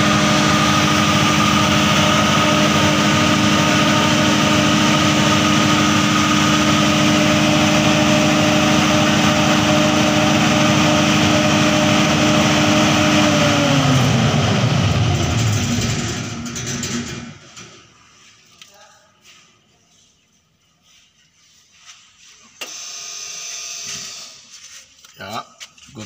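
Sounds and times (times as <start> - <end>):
diesel generator engine running: 0.0 - 17.8.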